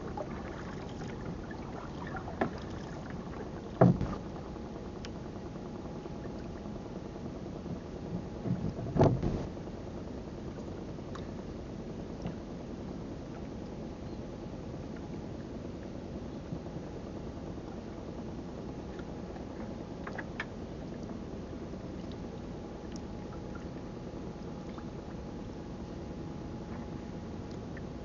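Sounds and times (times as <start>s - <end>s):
sea noise: 0.0s - 9.7s
wind: 0.0s - 28.0s
dull knocks on wooden boat: 3.8s - 4.2s, 8.4s - 9.5s.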